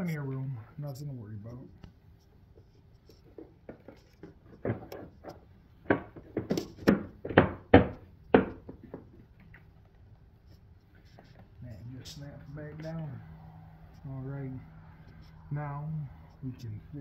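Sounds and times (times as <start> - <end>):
hard plastic knocks and clunks: 3.3 - 9.6.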